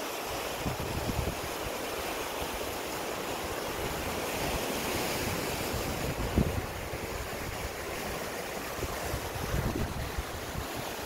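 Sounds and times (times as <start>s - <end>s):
surf washing over rocks: 0.0s - 11.0s
wind buffeting microphone: 0.6s - 1.8s, 3.5s - 11.0s.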